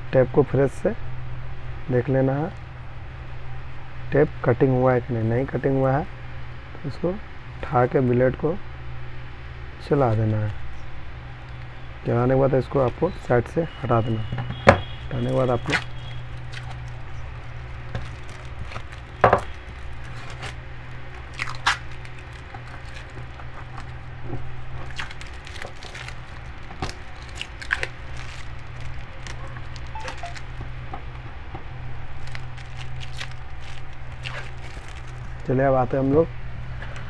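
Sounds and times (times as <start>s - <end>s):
adhesive tape crinkling and crackling: 13.8s - 35.9s.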